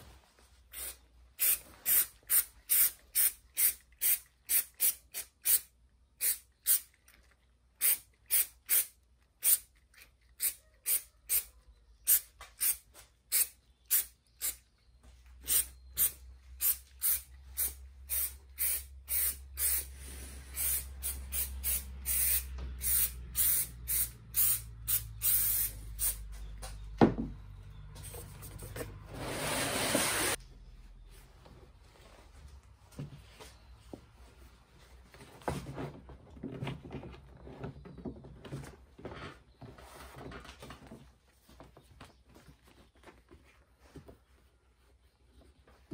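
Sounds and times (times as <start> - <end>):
aerosol spray bursts: 15.5 - 26.2.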